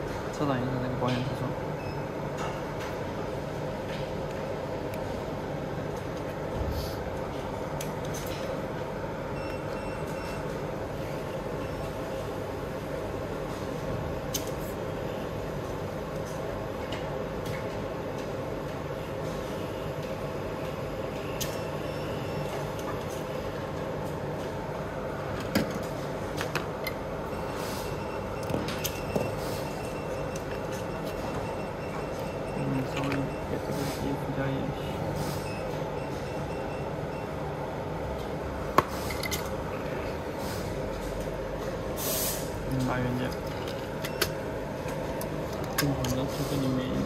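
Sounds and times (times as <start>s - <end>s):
hot-air station blowing: 41.8s - 42.6s.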